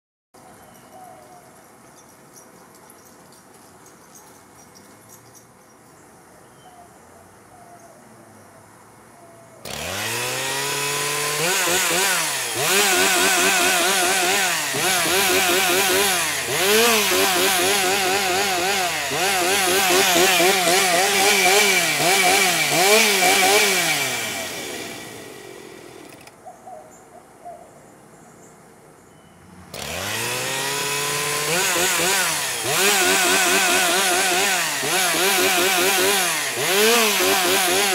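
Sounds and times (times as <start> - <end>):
chainsaw engine revving: 9.6 - 26.3, 29.7 - 37.9.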